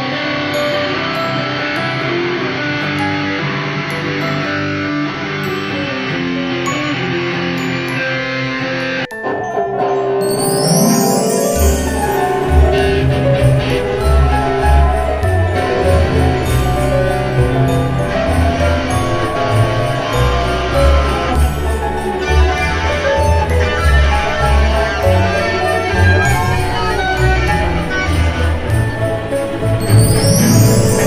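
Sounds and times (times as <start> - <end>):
melody of held notes: 0.0 - 31.0
music with jingle bells: 0.0 - 31.0.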